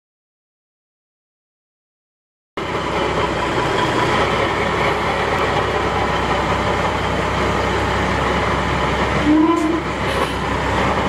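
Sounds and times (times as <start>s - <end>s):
diesel truck engine running: 2.6s - 11.0s.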